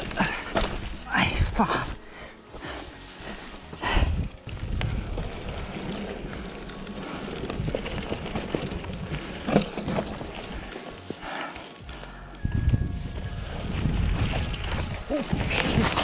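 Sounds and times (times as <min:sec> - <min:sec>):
bike rattling and knocking: 0:00.0 - 0:01.8, 0:03.8 - 0:11.2, 0:11.8 - 0:16.0
bike tyres grinding on rock: 0:00.0 - 0:11.8, 0:12.6 - 0:16.0
wind rumbling on microphone: 0:03.8 - 0:10.8, 0:12.4 - 0:16.0.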